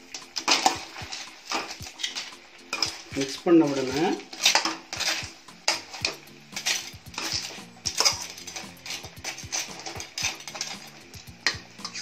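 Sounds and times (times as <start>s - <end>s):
metal spatula scraping a wok: 0.0s - 12.0s.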